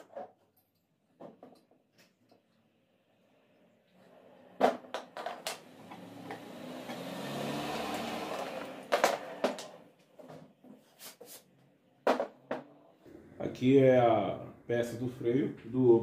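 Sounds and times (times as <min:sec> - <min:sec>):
vehicle rumble passing: 0:05.6 - 0:09.9.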